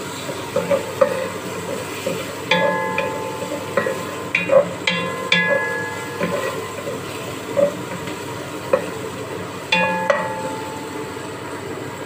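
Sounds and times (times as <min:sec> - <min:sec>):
onion sizzling in hot oil: 0:00.0 - 0:12.0
wooden spatula knocking metal pot: 0:00.5 - 0:09.0, 0:09.8 - 0:11.0.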